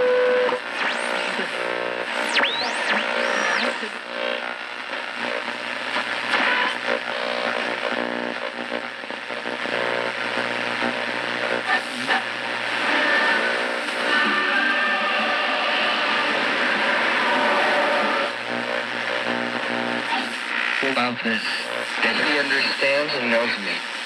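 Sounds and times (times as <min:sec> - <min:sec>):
fragments of radio station audio: 0:00.0 - 0:24.0
radio static: 0:00.0 - 0:24.0
radio whistle tones: 0:02.2 - 0:03.8.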